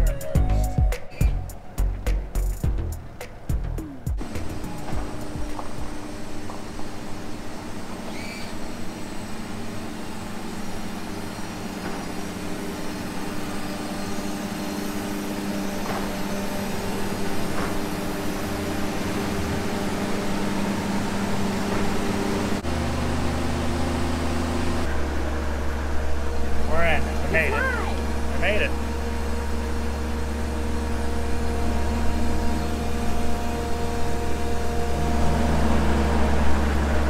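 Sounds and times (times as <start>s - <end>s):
outboard engines idling: 0.0s - 37.0s
heavy low rumble: 22.5s - 37.0s.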